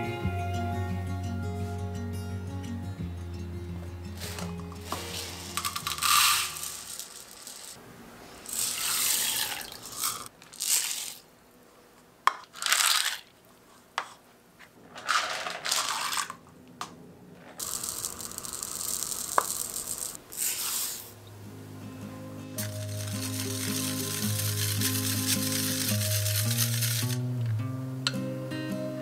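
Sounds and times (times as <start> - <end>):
grains pouring into water: 4.9 - 7.8, 8.4 - 11.2, 17.6 - 21.0, 22.6 - 27.2.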